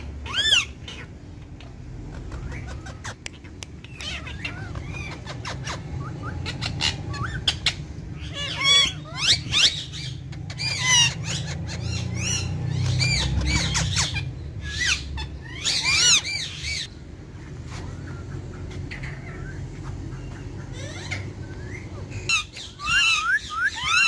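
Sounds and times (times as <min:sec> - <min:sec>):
parakeets squawking: 0:00.0 - 0:24.0
steady low hum: 0:00.0 - 0:24.0.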